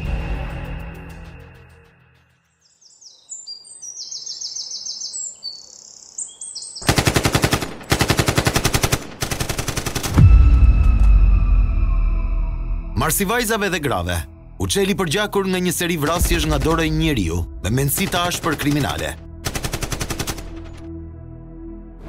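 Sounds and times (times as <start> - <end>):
music: 0.0 - 2.6, 10.1 - 22.0
birds chirping: 2.5 - 7.2
automatic gunfire: 6.8 - 10.2, 17.9 - 20.8
deep boom: 10.2 - 13.5.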